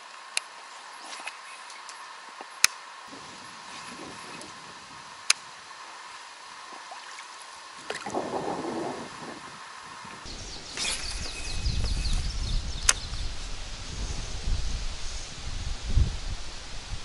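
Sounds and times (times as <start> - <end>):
wind rumble on microphone: 3.1 - 5.7, 7.7 - 17.0
water gurgling: 3.1 - 11.4
sharp click: 12.8 - 13.1.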